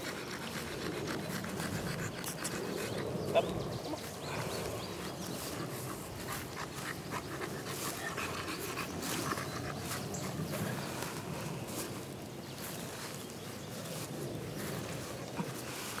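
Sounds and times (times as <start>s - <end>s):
dog panting: 0.0s - 16.0s.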